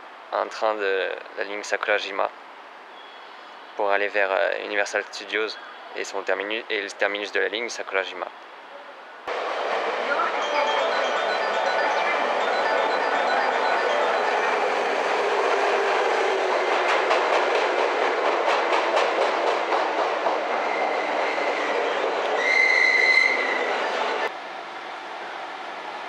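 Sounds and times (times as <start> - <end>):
train rolling noise: 9.3 - 26.0
high brake squeal: 22.4 - 23.7.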